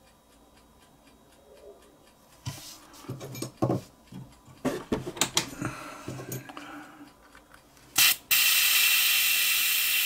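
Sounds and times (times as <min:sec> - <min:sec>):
faint steady ticking: 0:00.0 - 0:08.0.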